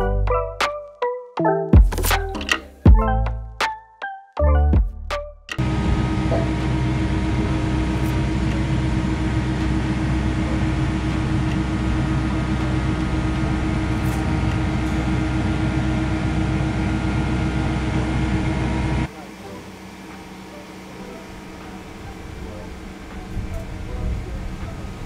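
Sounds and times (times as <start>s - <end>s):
excavator diesel engine running: 5.6s - 25.0s.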